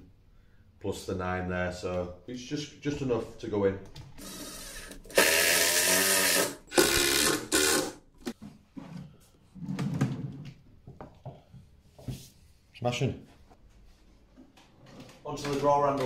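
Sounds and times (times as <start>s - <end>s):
impact driver driving screws: 4.2s - 8.4s.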